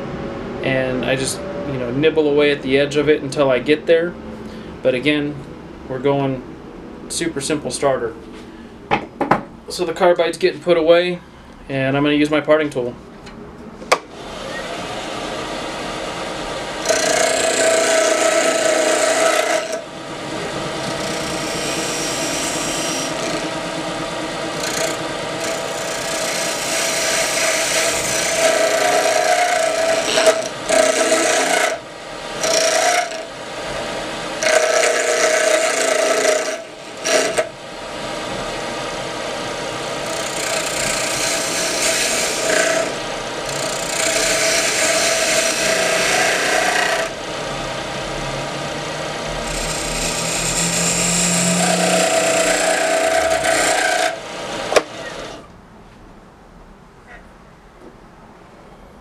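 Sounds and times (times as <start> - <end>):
wood lathe running: 14.1 - 55.5
tool scraping wood with ringing: 16.8 - 19.8, 20.4 - 23.6, 24.6 - 31.8, 32.4 - 33.3, 34.4 - 37.5, 49.5 - 54.2.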